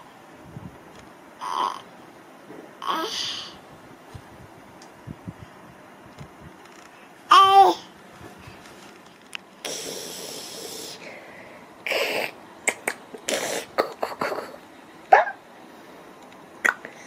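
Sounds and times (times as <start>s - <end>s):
person making breathy hissing noise: 2.8s - 3.6s, 9.6s - 14.6s
mouth clicks: 11.9s - 14.4s.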